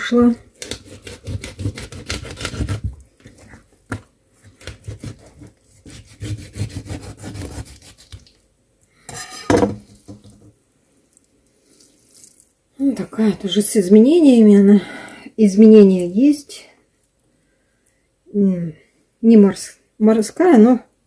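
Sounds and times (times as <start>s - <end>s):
knife sawing through fish: 0.6s - 2.8s, 4.7s - 8.2s
knife scrape: 4.7s - 8.3s, 9.1s - 10.1s.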